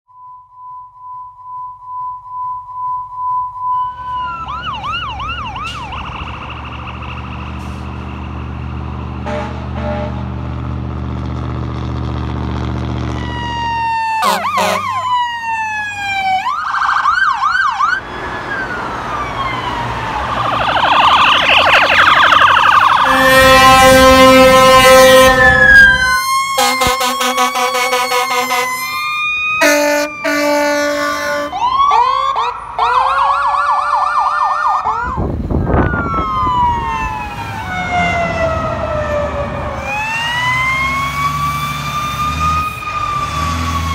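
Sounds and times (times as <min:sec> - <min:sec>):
electronic siren wailing: 0:01.2 - 0:10.1, 0:13.1 - 0:43.9
stacked horn tones: 0:09.2 - 0:10.3, 0:14.2 - 0:14.9, 0:23.0 - 0:29.0, 0:29.6 - 0:31.6.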